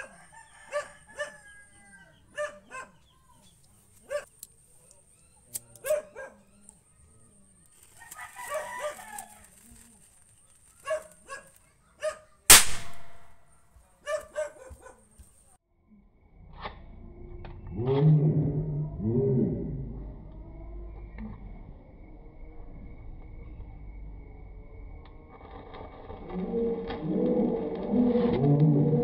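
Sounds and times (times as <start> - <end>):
dog barking: 0.0 - 1.6, 2.3 - 3.1, 4.0 - 4.3, 5.8 - 6.5, 10.8 - 12.5, 14.0 - 15.1
firecracker bang: 12.5 - 13.4.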